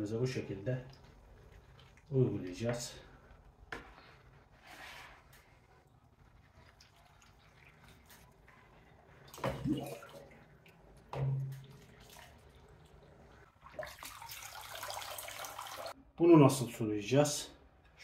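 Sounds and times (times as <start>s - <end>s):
water pouring from a jug: 6.3s - 16.0s
water splashing into plastic bowl: 9.2s - 13.0s, 13.6s - 15.9s.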